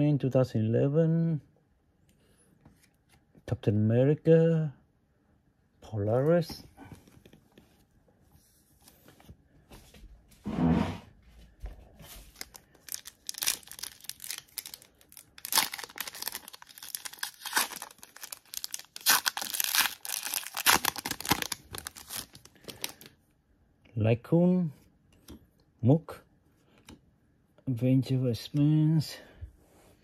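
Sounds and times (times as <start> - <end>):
wrapper tearing and crinkling: 12.3 - 23.1.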